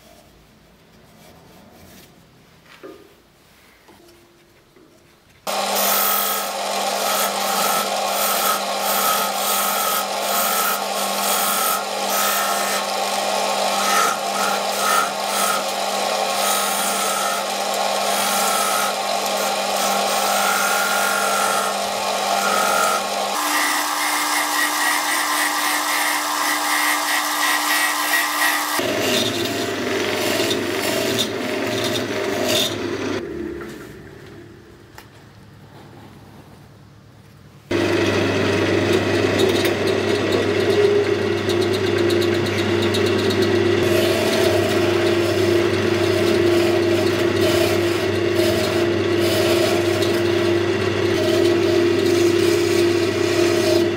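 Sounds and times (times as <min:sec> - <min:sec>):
chisel scraping wood on lathe: 0:05.5 - 0:33.2, 0:38.8 - 0:53.9.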